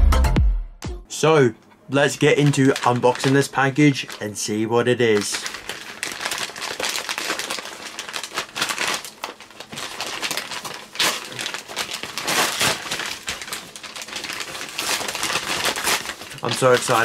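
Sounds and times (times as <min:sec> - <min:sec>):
paper envelope tearing: 0:02.3 - 0:17.0.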